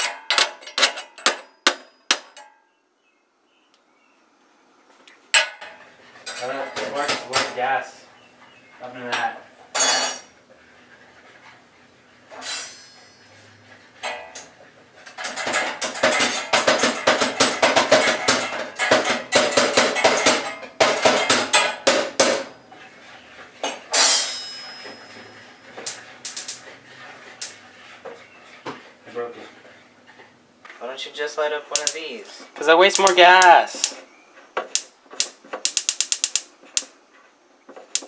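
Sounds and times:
stove igniter clicking: 34.7 - 36.9.

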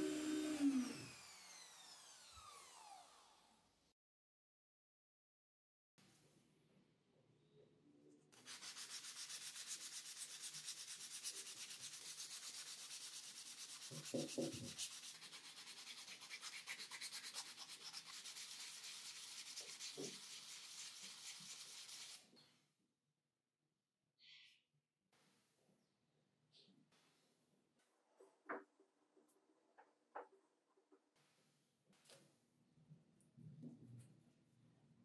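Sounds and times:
sandpaper rubbing on wood: 8.4 - 22.2.

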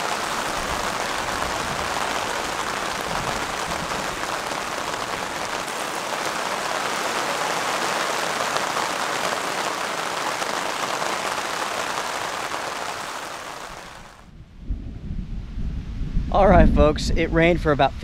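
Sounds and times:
steady rain: 0.0 - 14.3.

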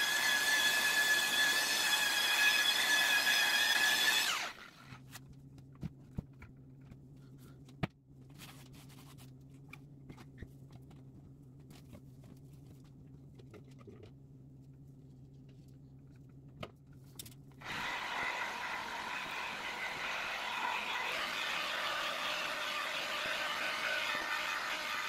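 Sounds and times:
electric polisher winding down: 0.0 - 4.6, 17.6 - 25.0
low electrical hum: 4.6 - 17.6.

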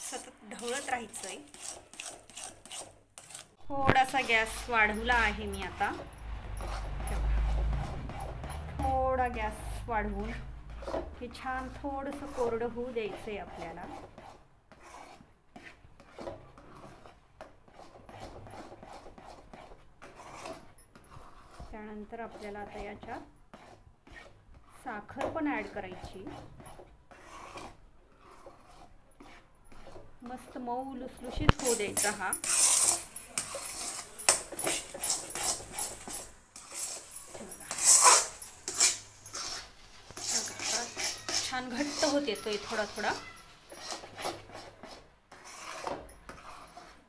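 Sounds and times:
spoon scraping metal pan: 0.0 - 15.7, 25.5 - 47.0.

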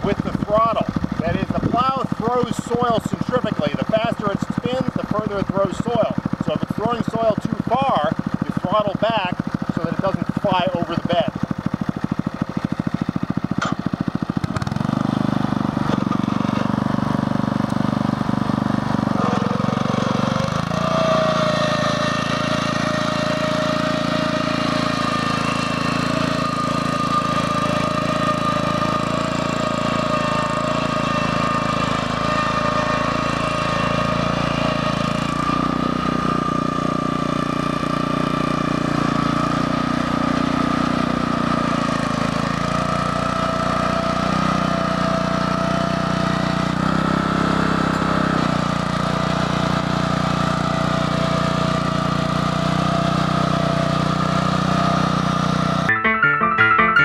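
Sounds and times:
plow throwing soil: 0.0 - 10.4, 11.3 - 17.8, 18.8 - 36.0
tractor engine running under load: 0.0 - 55.9.

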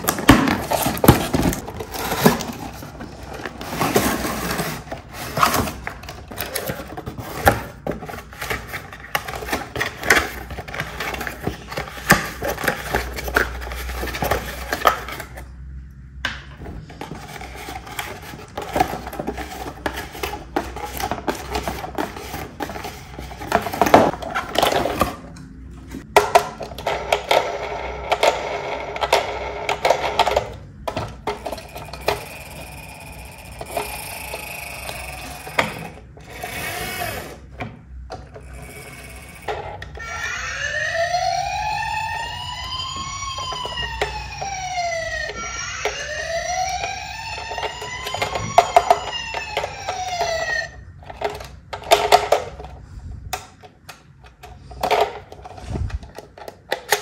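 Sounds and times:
plastic toy clicks and rattles: 26.0 - 37.0, 47.4 - 52.8
toy siren wailing: 31.5 - 37.4, 38.6 - 50.9.

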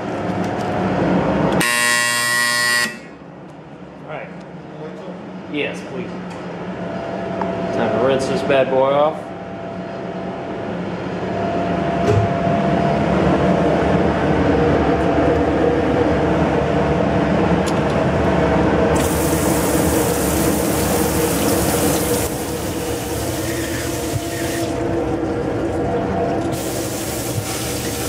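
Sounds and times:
water spray rinsing: 19.0 - 24.8, 26.5 - 28.0.

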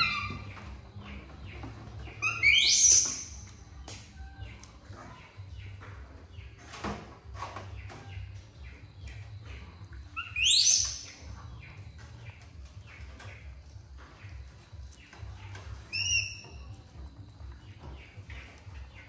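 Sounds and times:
baby monkey squealing: 0.0 - 0.5, 2.2 - 3.4, 10.2 - 11.1, 15.9 - 16.6.

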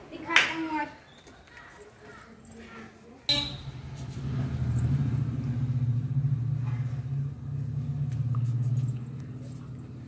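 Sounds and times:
engine humming: 3.3 - 10.0.

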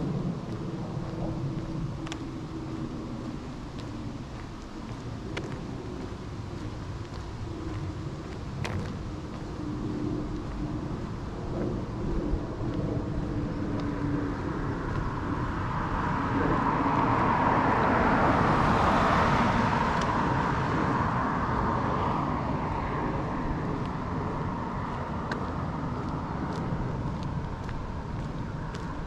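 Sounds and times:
car passing by: 12.7 - 29.0.

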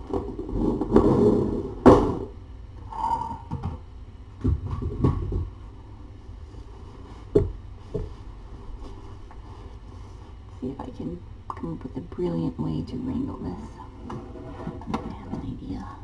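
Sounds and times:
objects knocking: 4.4 - 5.5.

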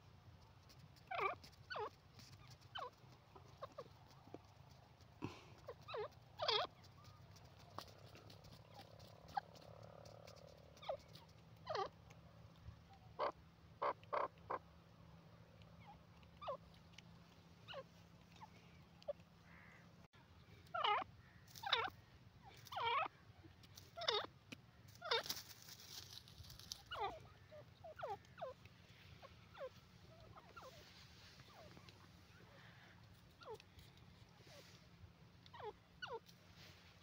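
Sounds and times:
francolin calling: 26.8 - 33.6.

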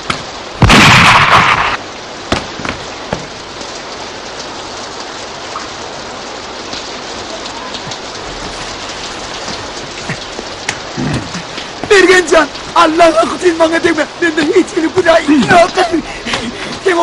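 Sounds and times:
sharp cracks: 0.0 - 2.8
heavy rain: 0.0 - 17.0
loud sudden blast: 0.6 - 1.8.

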